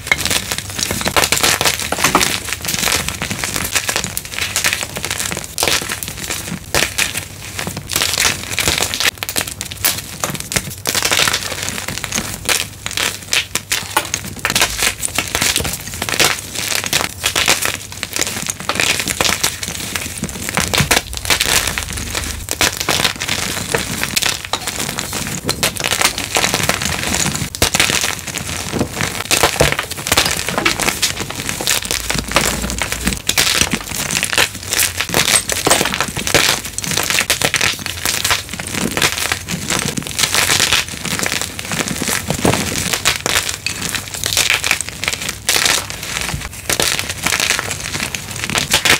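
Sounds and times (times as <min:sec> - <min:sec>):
chalk crunching and crumbling: 0:00.0 - 0:48.9.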